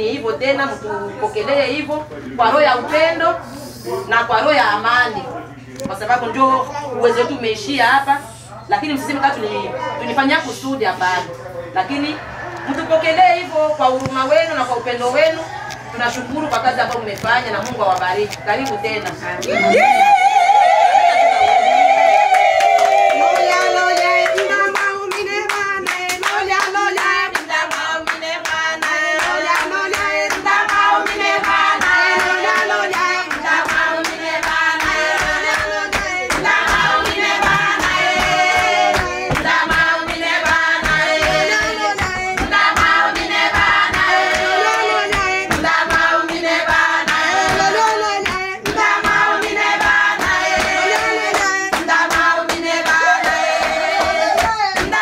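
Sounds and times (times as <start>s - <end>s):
rhythmic hand clapping: 15.2s - 20.5s, 22.2s - 55.0s.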